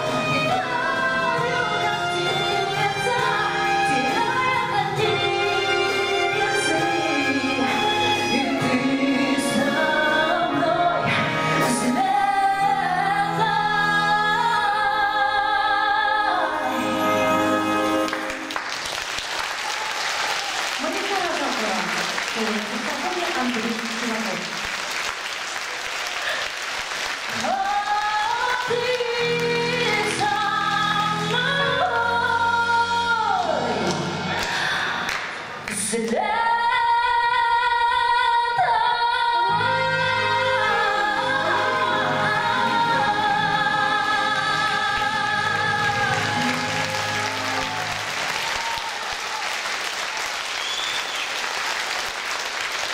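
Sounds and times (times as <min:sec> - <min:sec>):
woman singing: 0:00.0 - 0:18.1, 0:27.3 - 0:34.8, 0:35.7 - 0:47.8
wind band playing: 0:16.6 - 0:18.6
audience applause: 0:18.0 - 0:29.7, 0:33.9 - 0:35.6, 0:45.7 - 0:52.9.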